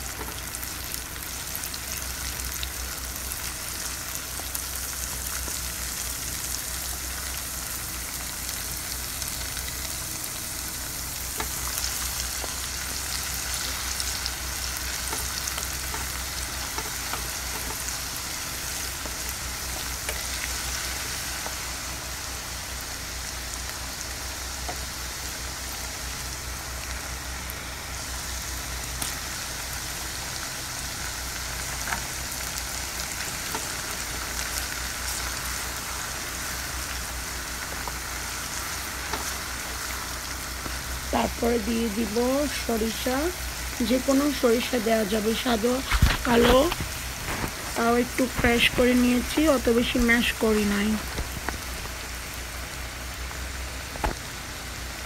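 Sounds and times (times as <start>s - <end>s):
spices sizzling in oil: 0.0s - 55.0s
wooden spatula stirring: 15.0s - 18.0s.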